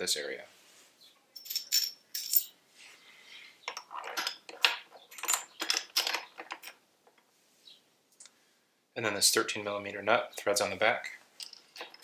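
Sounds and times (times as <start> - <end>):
small metal parts clinking: 1.4 - 2.6, 3.7 - 6.8, 11.4 - 12.0.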